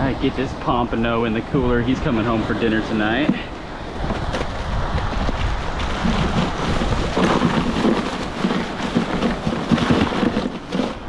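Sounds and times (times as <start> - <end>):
wind buffeting microphone: 0.0 - 11.0
rustling: 2.8 - 11.0
plastic cooler knocks: 4.1 - 11.0.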